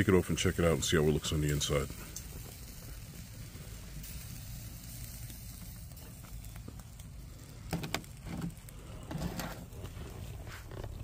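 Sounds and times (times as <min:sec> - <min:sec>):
low rumble of twig fire: 0:00.0 - 0:11.0.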